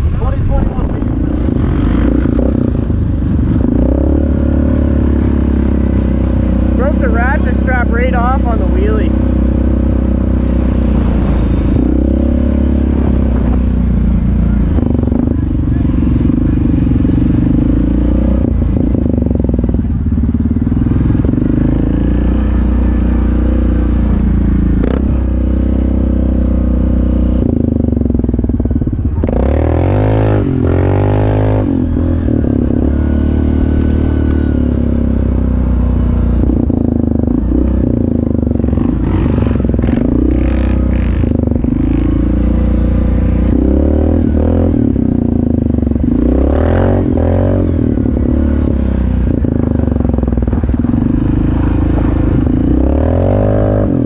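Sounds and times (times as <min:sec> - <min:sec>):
atv engine revving: 0:00.0 - 0:54.0.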